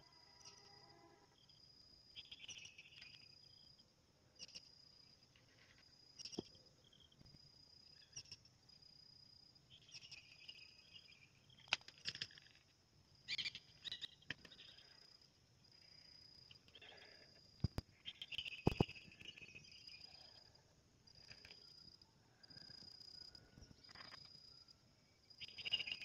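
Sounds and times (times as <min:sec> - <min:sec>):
high-pitched insect trill: 0:00.0 - 0:26.0
short chirping calls: 0:13.3 - 0:14.8, 0:18.0 - 0:20.1.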